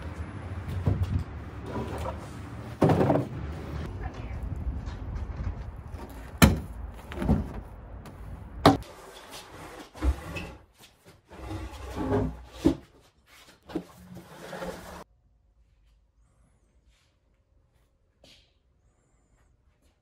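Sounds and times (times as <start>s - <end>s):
wood scraping and shuffling: 5.0s - 15.1s.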